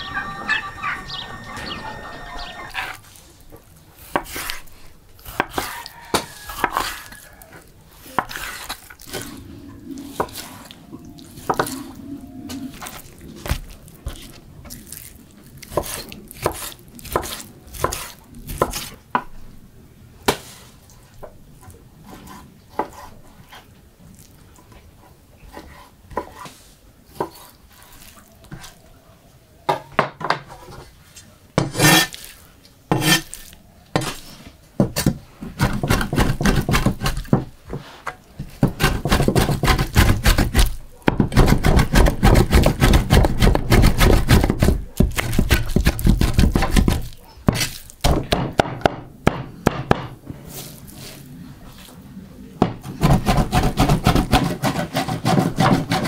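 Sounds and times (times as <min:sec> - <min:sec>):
rapid knife chopping meat: 0:35.6 - 0:37.4, 0:38.6 - 0:50.0, 0:53.0 - 0:56.0.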